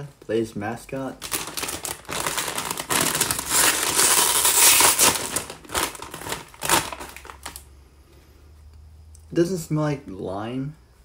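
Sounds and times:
chip bag crinkling: 0:01.1 - 0:07.7.

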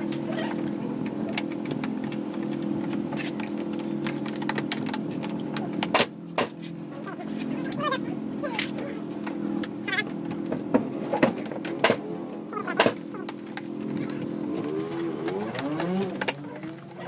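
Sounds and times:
hand tools clicking and clattering: 0:08.5 - 0:17.0.

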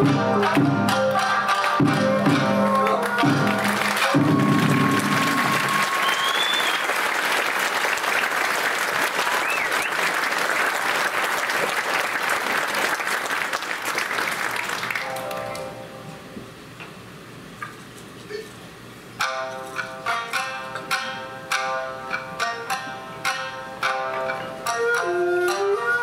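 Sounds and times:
shamisen and taiko music: 0:00.0 - 0:06.2, 0:15.0 - 0:16.1, 0:19.2 - 0:26.0
audience applauding: 0:02.6 - 0:15.7.

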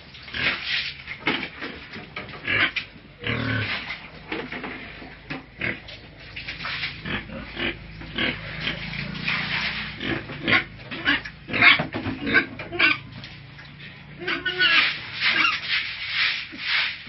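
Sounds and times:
piglets squealing and grunting: 0:02.4 - 0:03.9, 0:06.8 - 0:13.1, 0:14.0 - 0:16.7.

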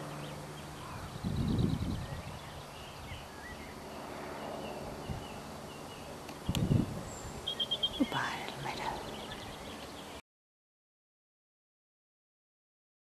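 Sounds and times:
robin singing: 0:00.0 - 0:10.2
wind buffeting microphone: 0:00.8 - 0:03.3, 0:04.8 - 0:05.5, 0:06.4 - 0:08.4.

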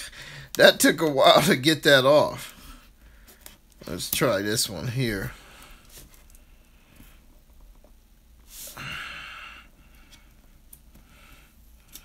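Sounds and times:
person sighing: 0:08.6 - 0:09.7.

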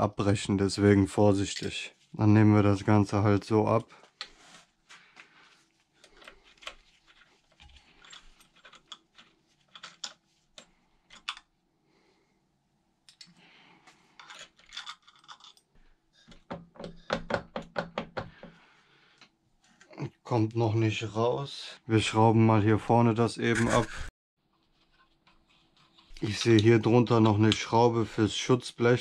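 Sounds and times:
light clicks and scrapes: 0:03.7 - 0:11.5, 0:13.1 - 0:15.7, 0:24.5 - 0:27.6.

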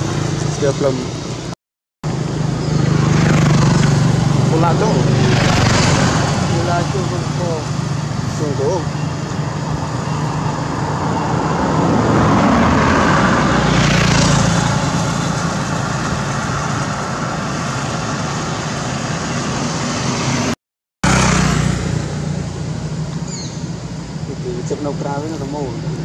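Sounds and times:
vehicle engine passing: 0:00.0 - 0:26.0.

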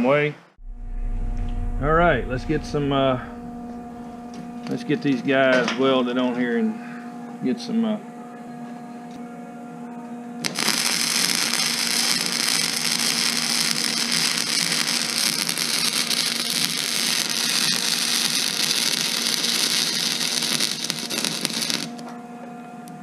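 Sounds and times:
welder arc crackling: 0:10.4 - 0:22.1.

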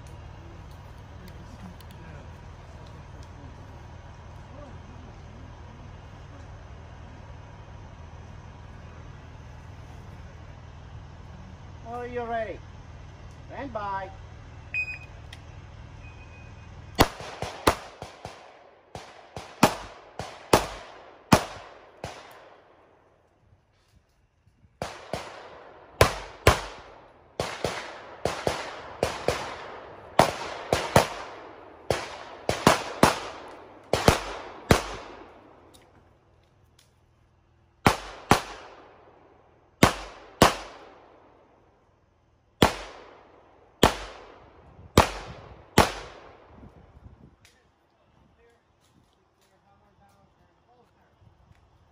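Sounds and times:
shot timer beep: 0:14.8 - 0:15.2
pistol shots echoing: 0:17.0 - 0:22.8, 0:24.8 - 0:35.7, 0:37.8 - 0:39.2, 0:39.8 - 0:41.4, 0:42.6 - 0:46.5.

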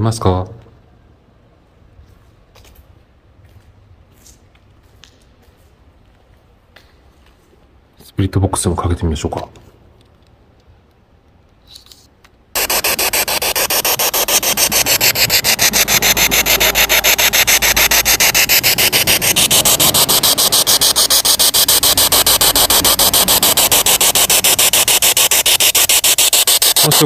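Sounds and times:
radio static pulsing: 0:12.6 - 0:27.0.

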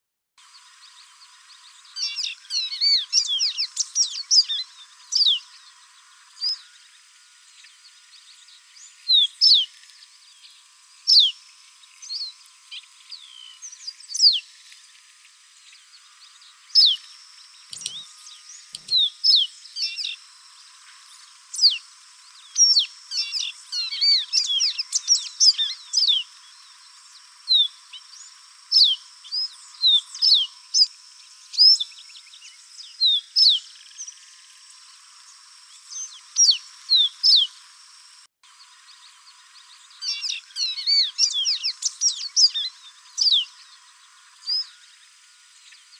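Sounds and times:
bird singing high whistled notes: 0:01.6 - 0:05.7, 0:06.3 - 0:06.9, 0:08.4 - 0:09.7, 0:10.3 - 0:11.4, 0:12.0 - 0:14.5, 0:15.7 - 0:20.2, 0:21.5 - 0:21.8, 0:22.4 - 0:34.2, 0:35.8 - 0:37.6, 0:39.7 - 0:43.8, 0:44.4 - 0:44.9.

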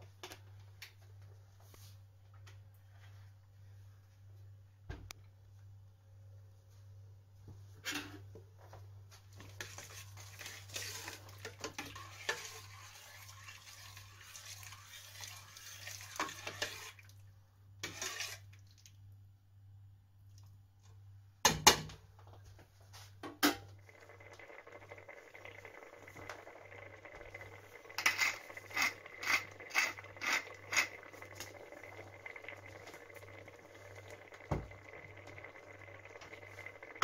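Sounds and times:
cream being poured: 0:09.6 - 0:17.2, 0:23.8 - 0:37.0
spoon scraping and clinking on pot: 0:17.8 - 0:18.4, 0:27.8 - 0:31.4.

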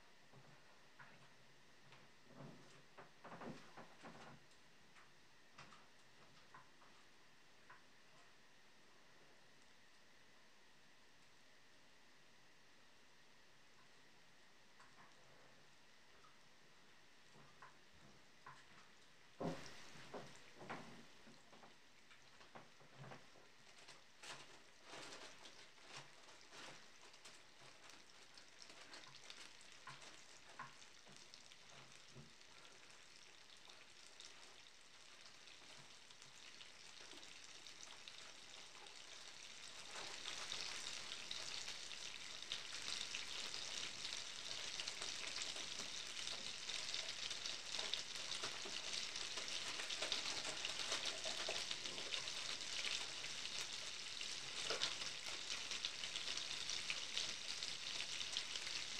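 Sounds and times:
butter sizzling in a frying pan: 0:18.3 - 0:58.9.

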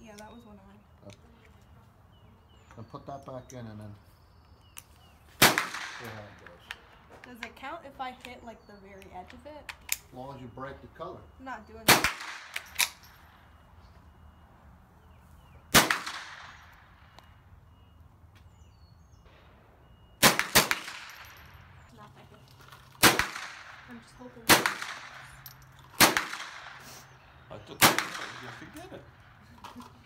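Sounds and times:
gunshots echoing: 0:05.4 - 0:06.3, 0:11.9 - 0:13.0, 0:15.7 - 0:16.6, 0:20.2 - 0:21.5, 0:23.0 - 0:25.4, 0:26.0 - 0:26.9, 0:27.7 - 0:29.2.

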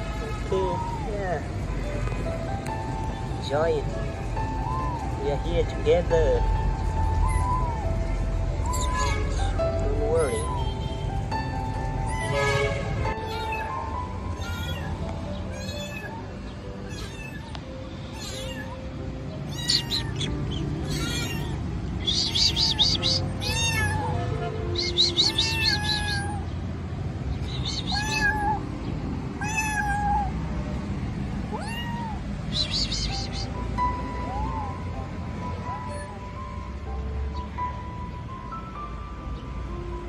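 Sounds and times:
kitten meowing: 0:07.1 - 0:08.0, 0:13.2 - 0:26.6, 0:27.4 - 0:28.7, 0:29.4 - 0:30.4, 0:31.4 - 0:34.9.

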